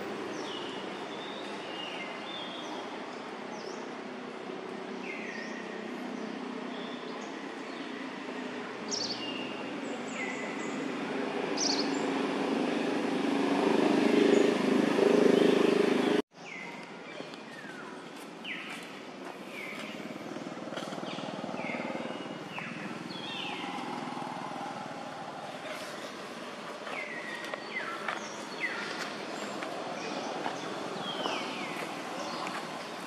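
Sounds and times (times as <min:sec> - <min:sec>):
birds chirping: 0:08.9 - 0:12.4, 0:13.0 - 0:33.0.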